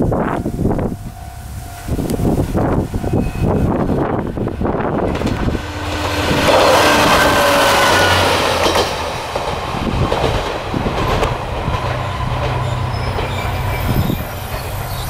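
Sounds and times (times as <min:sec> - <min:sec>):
high whine: 0:00.0 - 0:10.0
diesel railcar passing: 0:00.0 - 0:15.0
wheels clacking over rail joints: 0:01.8 - 0:15.0.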